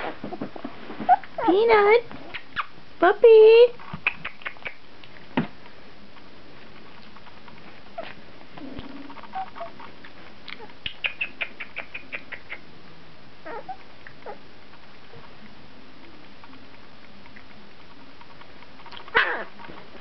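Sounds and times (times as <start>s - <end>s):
puppies squeaking: 2.2s - 2.8s, 4.0s - 4.8s, 7.9s - 8.2s, 8.8s - 9.9s, 10.5s - 12.7s, 13.4s - 14.4s, 18.9s - 19.7s.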